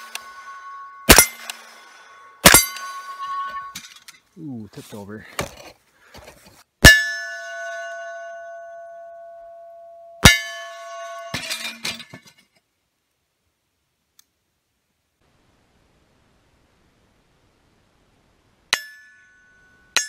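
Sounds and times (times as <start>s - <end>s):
bullet hitting steel plate clang: 0.0s - 4.1s, 6.8s - 12.3s, 18.7s - 20.0s.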